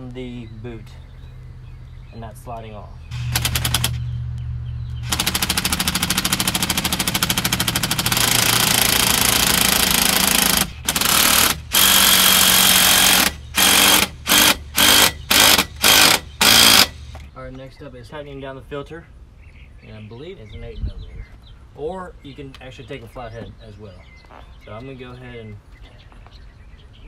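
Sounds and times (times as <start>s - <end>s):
impact driver hammering: 3.1s - 4.1s, 5.0s - 17.3s.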